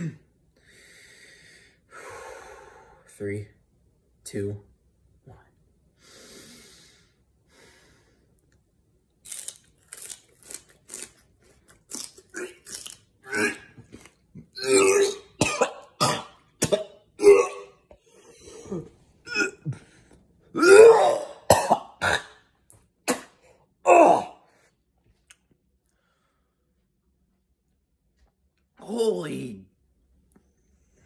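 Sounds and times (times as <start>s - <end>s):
man coughing and gagging: 14.4s - 17.9s, 18.5s - 19.9s, 20.5s - 22.4s, 23.0s - 24.4s.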